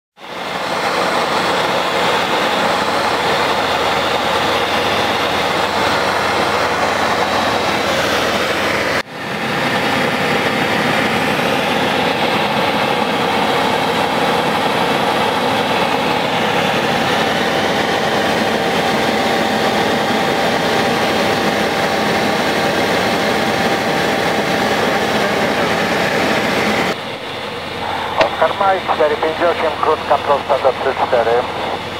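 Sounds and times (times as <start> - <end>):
light aircraft engine and propeller: 0.2 - 31.9.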